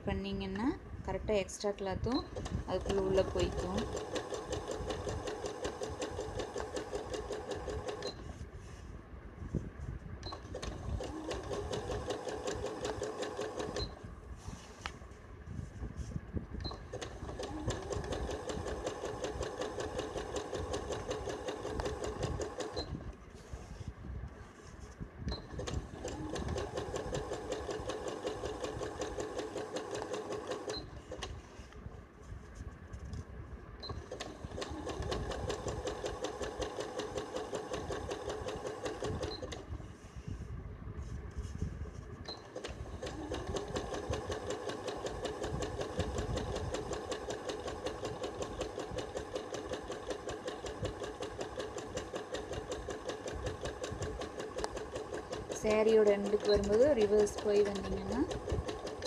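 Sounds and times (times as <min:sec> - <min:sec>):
electric sewing machine stitching: 0:02.1 - 0:08.1, 0:10.4 - 0:14.0, 0:16.8 - 0:23.0, 0:25.4 - 0:31.3, 0:33.9 - 0:39.7, 0:42.4 - 0:59.0
sewing machine tick: 0:51.1 - 0:59.0.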